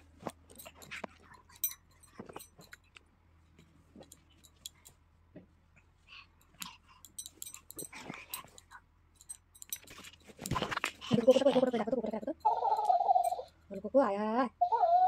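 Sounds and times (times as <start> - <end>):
baby mouthing sounds: 6.2 - 8.8.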